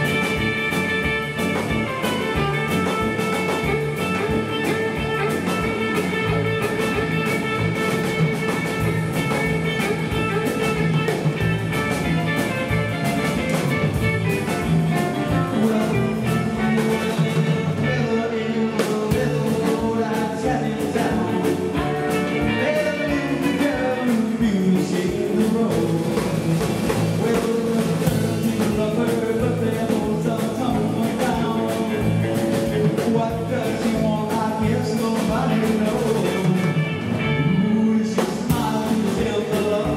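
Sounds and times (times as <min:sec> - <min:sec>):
drum kit beat: 0:00.0 - 0:18.0, 0:18.8 - 0:39.9
electric guitars: 0:00.0 - 0:39.9.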